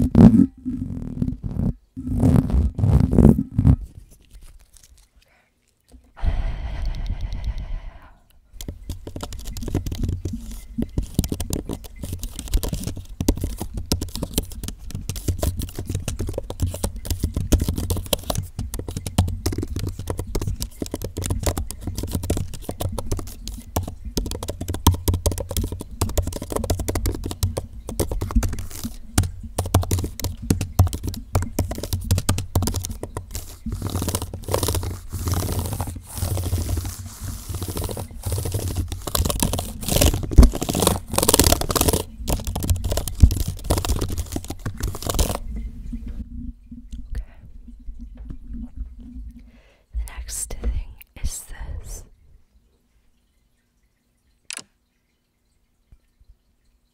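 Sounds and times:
crackling and scratching at microphone: 0:00.0 - 0:52.2.

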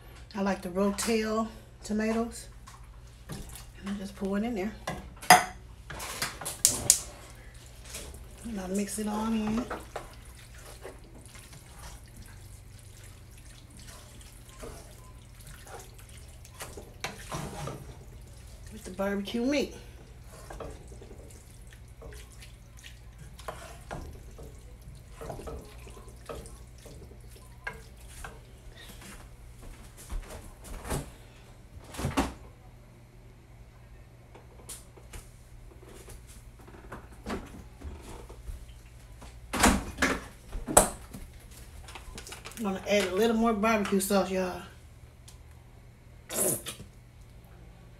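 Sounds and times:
steady low hum: 0:00.0 - 0:47.9
spoon stirring wet food: 0:05.9 - 0:29.7
kitchen knocks and clunks: 0:39.5 - 0:41.2.

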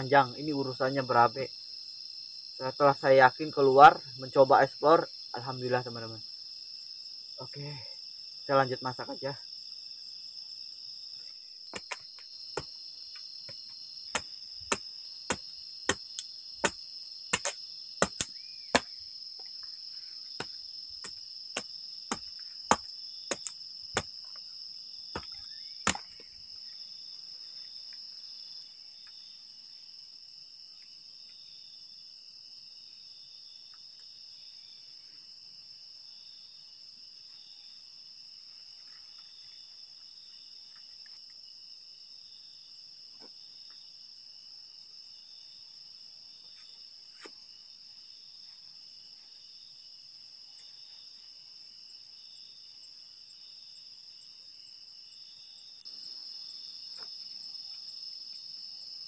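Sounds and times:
crickets chirring: 0:00.0 - 0:59.0
machete chopping wood: 0:11.7 - 0:12.0, 0:12.6 - 0:12.8, 0:13.5 - 0:19.0, 0:20.3 - 0:24.3, 0:25.1 - 0:26.3.

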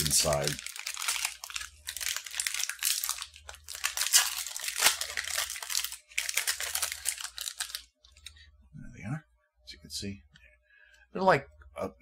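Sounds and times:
snack wrapper crinkling and tearing: 0:00.0 - 0:08.3.

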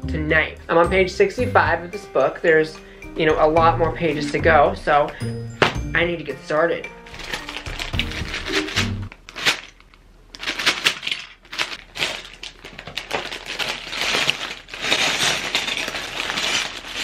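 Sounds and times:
plastic bag crinkling: 0:07.0 - 0:17.0
plastic bricks rattling: 0:07.1 - 0:17.0.

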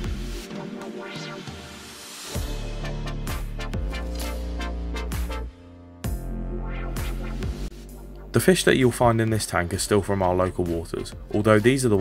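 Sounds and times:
electronic music with heavy bass: 0:00.0 - 0:08.9.

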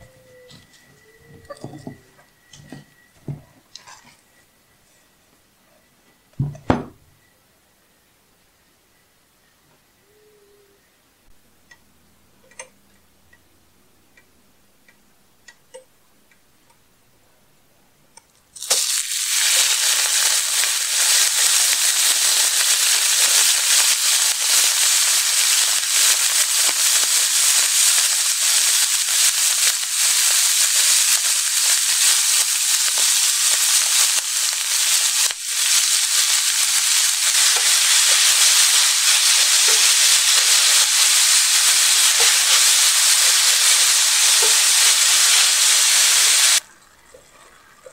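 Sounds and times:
meat sizzling in hot oil: 0:18.6 - 0:46.6.

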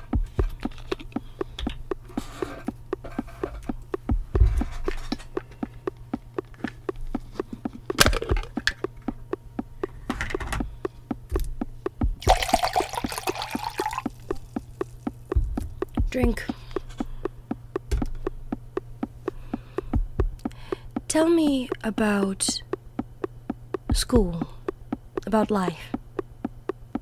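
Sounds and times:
low steady hum: 0:00.0 - 0:27.0
rapid clicking beats: 0:00.0 - 0:27.0
water poured into a glass: 0:12.3 - 0:14.0.

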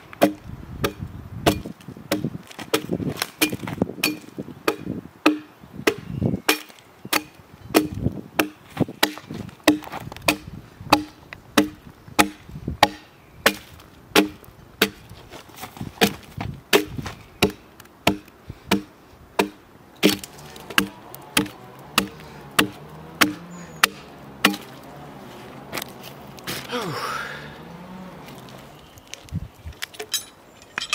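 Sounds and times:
axe chopping into log: 0:00.2 - 0:15.0, 0:16.0 - 0:24.9.

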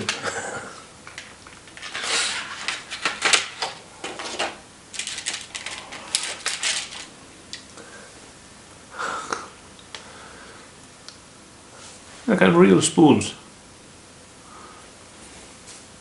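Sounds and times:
plastic blister tray crackling: 0:01.1 - 0:07.1.

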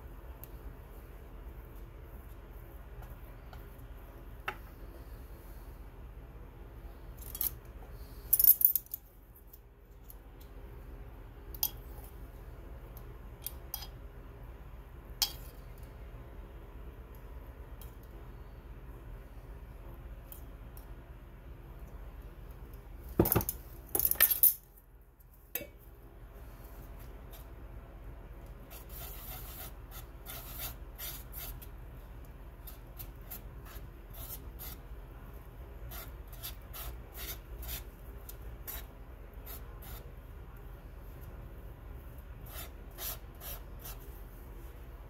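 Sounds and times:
palette knife scraping paint: 0:28.6 - 0:31.7, 0:32.6 - 0:34.8, 0:35.8 - 0:40.1, 0:42.4 - 0:44.2.

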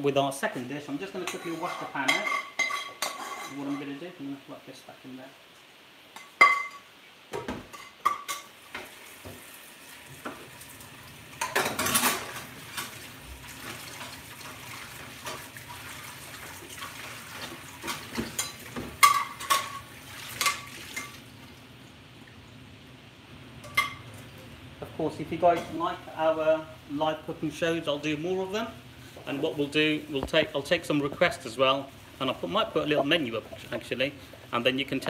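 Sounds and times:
tap water running: 0:07.3 - 0:22.5.

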